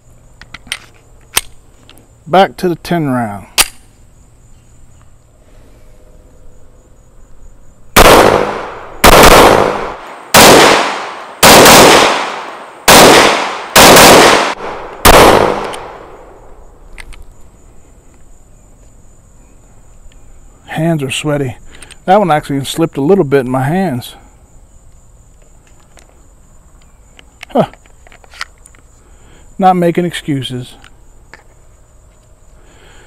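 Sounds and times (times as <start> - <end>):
pistol shots echoing: 8.0 - 16.1.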